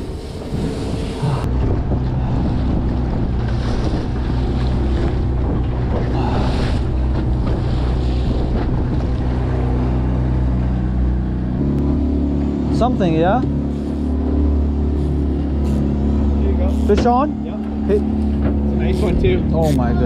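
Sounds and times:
wind on microphone: 0:00.0 - 0:10.1
outboard motor running: 0:00.0 - 0:20.0
water rushing along hull: 0:00.0 - 0:20.0.

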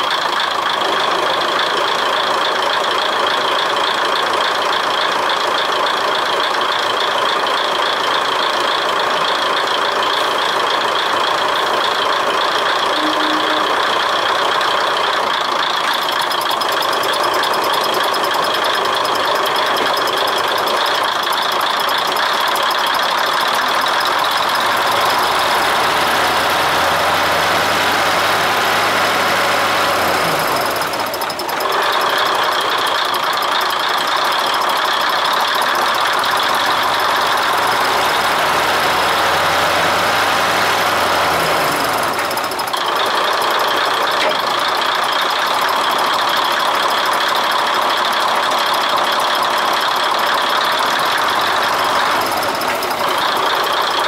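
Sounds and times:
diesel engine idling with clatter: 0:00.0 - 0:54.0.

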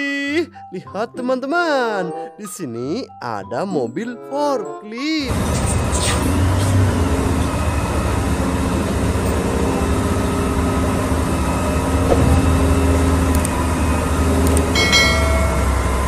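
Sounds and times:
diesel engines droning: 0:05.3 - 0:16.0.

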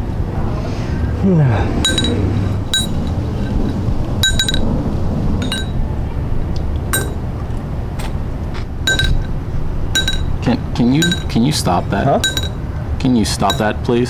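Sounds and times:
spoon tapping a bowl: 0:13.4 - 0:13.7.

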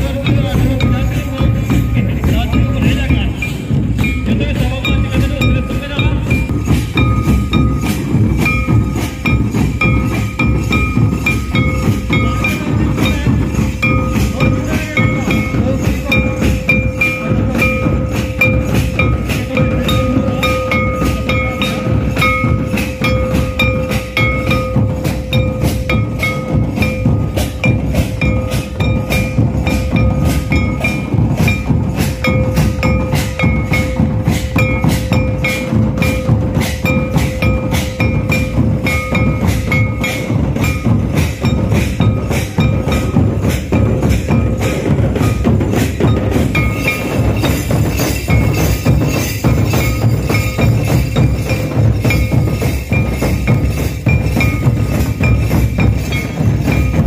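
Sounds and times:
drums beating fast rhythm: 0:00.0 - 0:57.0.

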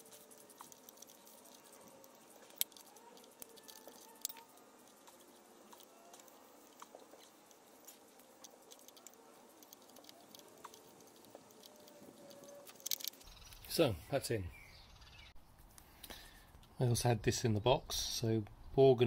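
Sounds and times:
small clicks and rubbing: 0:00.0 - 0:13.7
sharp clicks: 0:00.2 - 0:13.7.

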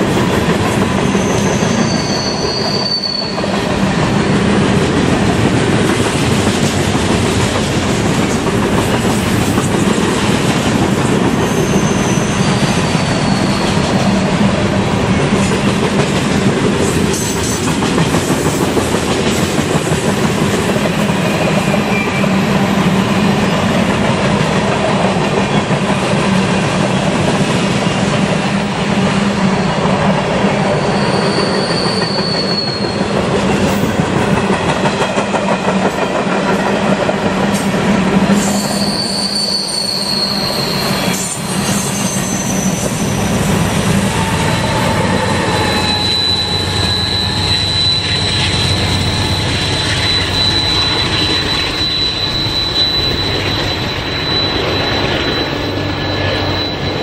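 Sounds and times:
train wheels rumbling and clacking: 0:00.0 - 0:57.0
faint wheel squeals: 0:11.4 - 0:13.9, 0:30.7 - 0:33.0, 0:38.4 - 0:43.1, 0:45.0 - 0:57.0.

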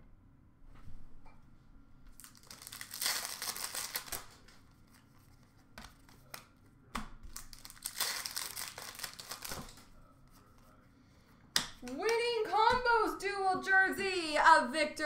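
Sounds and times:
foil wrappers crinkling: 0:02.2 - 0:06.4, 0:07.3 - 0:09.9.

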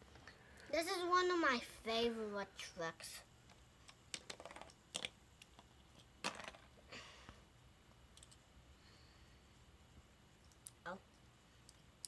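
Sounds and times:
plastic toy bricks clicking: 0:03.8 - 0:06.7, 0:08.2 - 0:08.4.

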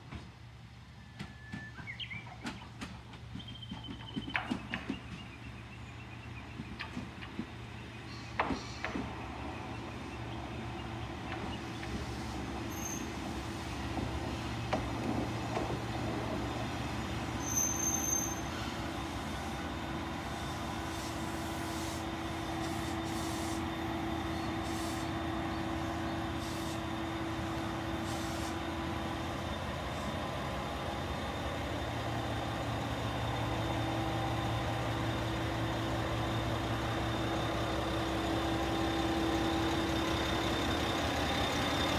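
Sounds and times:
diesel railcar engine running: 0:00.0 - 0:41.9.

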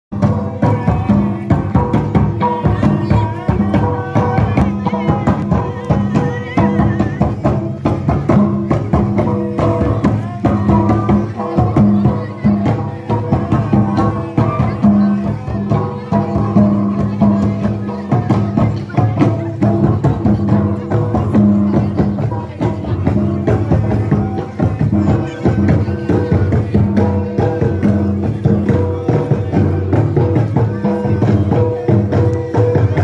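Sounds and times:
drums beating steady rhythm: 0:00.1 - 0:33.0
folk dance music: 0:00.1 - 0:33.0.

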